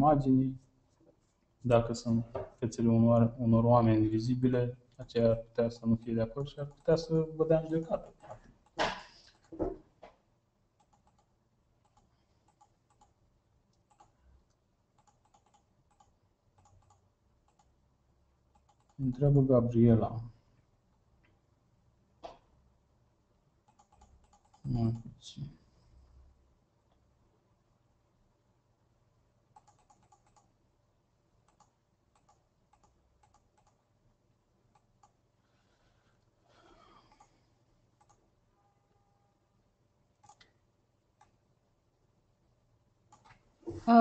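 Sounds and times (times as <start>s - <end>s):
faint keyboard typing: 6.2s - 17.8s, 18.4s - 19.4s, 23.6s - 26.0s, 29.5s - 30.6s, 31.4s - 34.0s, 34.6s - 38.3s, 40.1s - 41.4s, 43.0s - 43.8s
computer keyboard typing: 10.8s - 13.2s, 13.8s - 14.2s, 15.0s - 17.7s, 18.5s - 19.1s, 23.6s - 25.1s, 29.5s - 30.5s, 31.4s - 33.8s, 38.0s - 38.2s, 40.2s - 40.5s, 43.1s - 43.4s.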